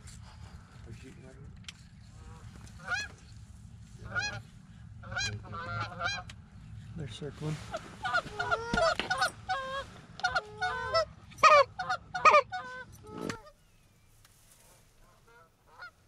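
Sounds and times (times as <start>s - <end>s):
geese honking: 2.1s - 3.2s, 4.0s - 6.4s, 7.7s - 13.6s, 15.0s - 16.0s.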